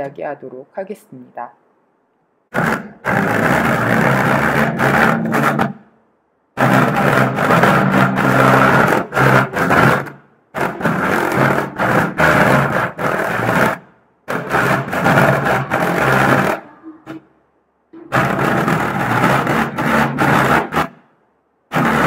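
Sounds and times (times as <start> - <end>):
paper buzzing on a speaker: 2.5 - 5.8, 6.6 - 17.2, 18.0 - 21.0, 21.7 - 22.0.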